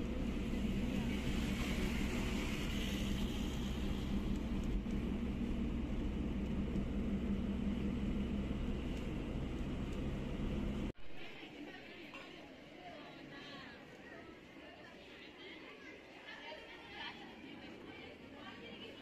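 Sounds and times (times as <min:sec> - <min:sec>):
bus engine drone: 0:00.0 - 0:11.0
tyres and wind rushing: 0:00.0 - 0:11.0.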